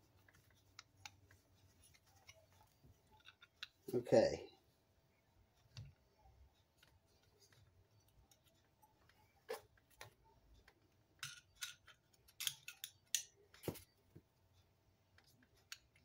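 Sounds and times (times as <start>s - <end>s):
clicks of small parts handled: 11.2s - 13.8s.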